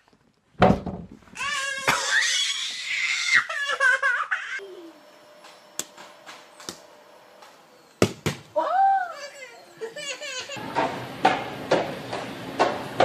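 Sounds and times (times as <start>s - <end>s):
baby squealing and giggling: 1.4s - 5.0s, 9.1s - 10.6s.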